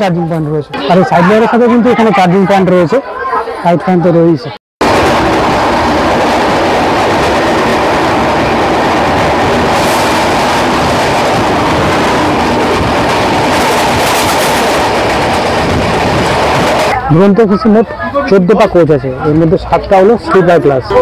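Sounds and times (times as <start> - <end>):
train wheels rumbling and rattling: 4.8 - 17.8.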